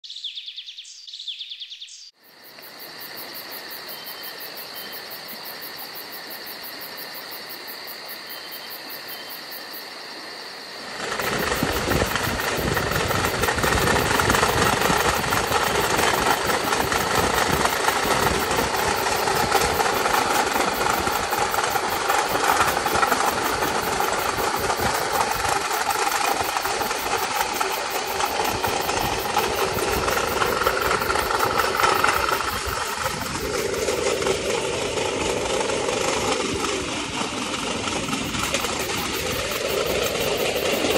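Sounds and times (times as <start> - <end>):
steel wheels rumbling on track: 10.8 - 40.9.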